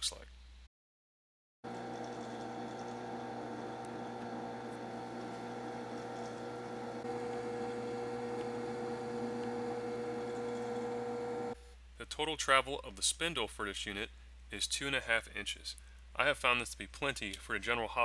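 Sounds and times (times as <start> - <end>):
drill press motor humming: 1.7 - 11.6.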